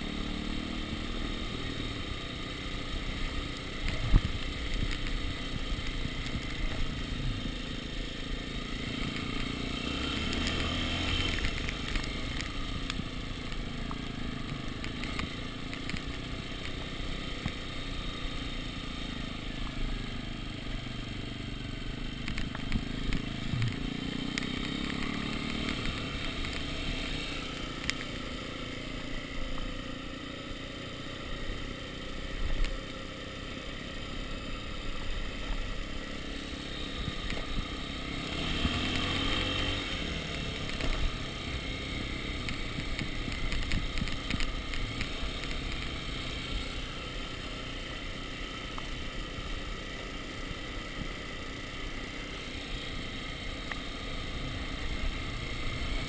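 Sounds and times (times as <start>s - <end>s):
dirt bike engine running: 0.0s - 56.0s.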